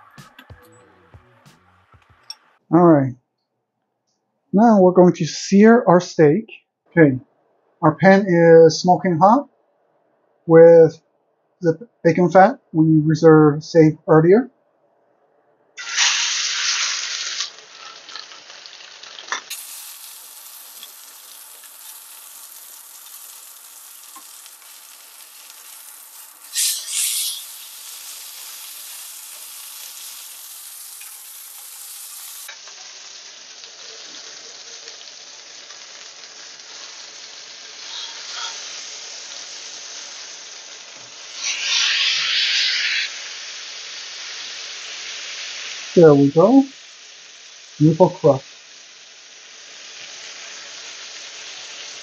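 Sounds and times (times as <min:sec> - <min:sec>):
steak sizzling in frying pan: 0:15.8 - 0:52.0.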